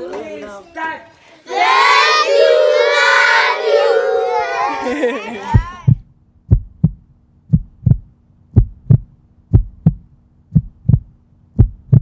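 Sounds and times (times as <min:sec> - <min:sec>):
heartbeat thumps: 0:05.5 - 0:12.0.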